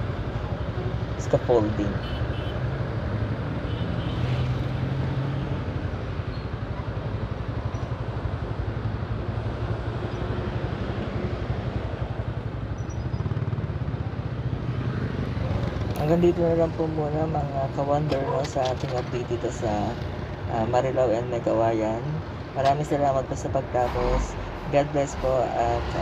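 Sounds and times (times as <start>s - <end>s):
road traffic hum: 0.0s - 26.0s.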